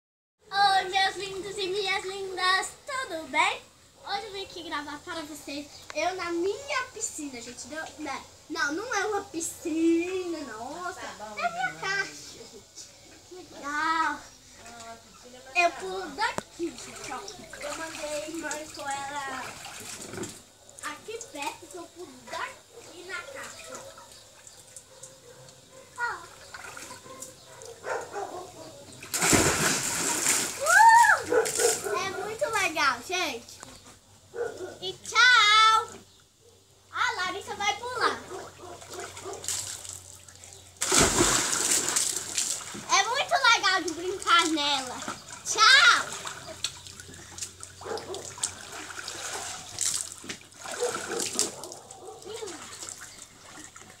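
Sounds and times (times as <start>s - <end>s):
water sloshing in plastic tank: 15.8s - 32.7s, 37.6s - 54.0s
loud splash: 29.1s - 31.1s, 40.8s - 42.8s.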